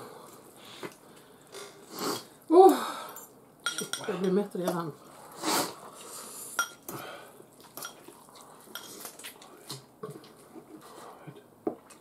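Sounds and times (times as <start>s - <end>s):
forks clinking on glass bowls: 3.2s - 4.8s, 6.6s - 6.8s, 7.8s - 8.1s, 8.7s - 9.0s.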